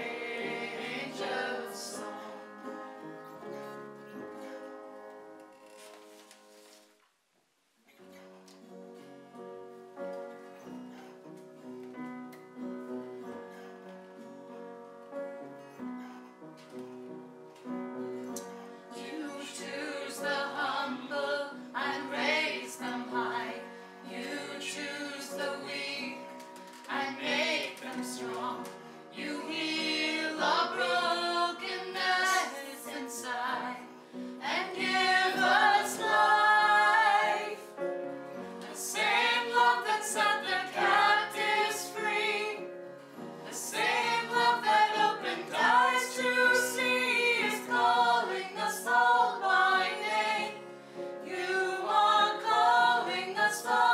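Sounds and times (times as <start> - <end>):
choir singing a hymn: 0.0 - 3.8, 18.9 - 53.9.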